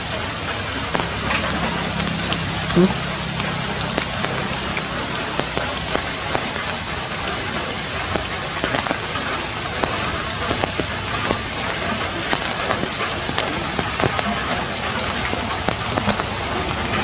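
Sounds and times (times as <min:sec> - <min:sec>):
rain falling on leaves: 0:00.0 - 0:17.0
raindrops tapping: 0:00.0 - 0:17.0.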